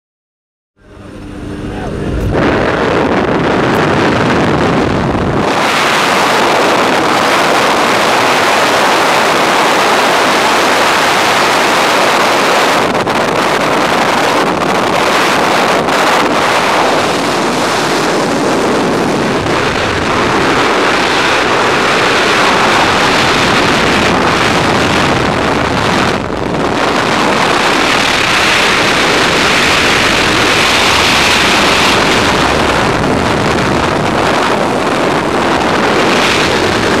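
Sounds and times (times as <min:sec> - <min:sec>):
aircraft engine rumble: 0:00.8 - 0:37.0
wind rushing over microphone: 0:00.8 - 0:37.0.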